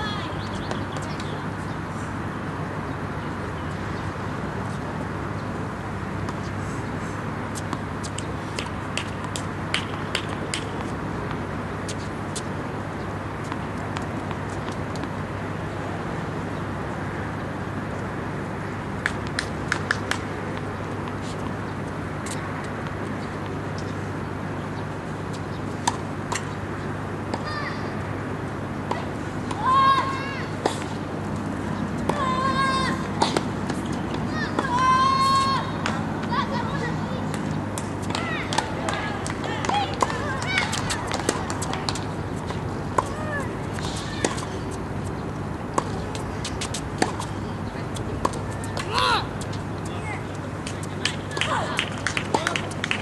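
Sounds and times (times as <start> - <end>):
tennis ball bouncing on court: 0.0 - 1.6, 6.2 - 6.5, 7.5 - 16.2, 18.8 - 24.0, 25.2 - 27.7, 28.8 - 53.0
distant city traffic hum: 0.0 - 53.0.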